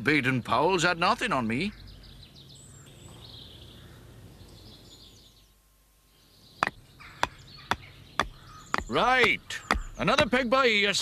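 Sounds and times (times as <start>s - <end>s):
birds chirping: 0.0s - 11.0s
mallet knocking tent peg: 6.6s - 10.5s.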